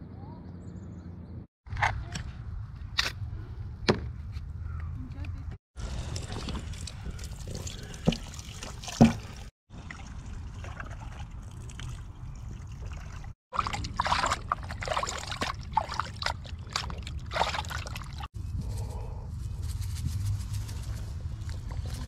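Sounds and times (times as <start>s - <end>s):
hands sloshing meat in water: 12.6s - 18.3s.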